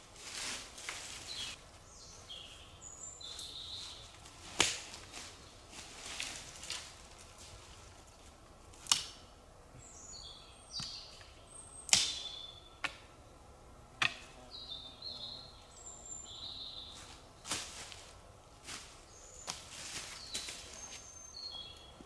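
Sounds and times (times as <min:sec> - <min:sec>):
songbirds chirping: 0:00.0 - 0:22.0
footsteps cracking twigs and leaves: 0:03.2 - 0:09.2, 0:16.9 - 0:21.8.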